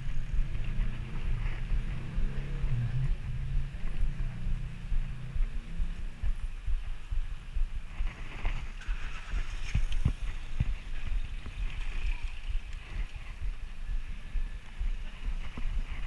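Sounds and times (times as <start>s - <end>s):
wind buffeting microphone: 0.0s - 16.0s
bicycle rattling: 7.8s - 16.0s.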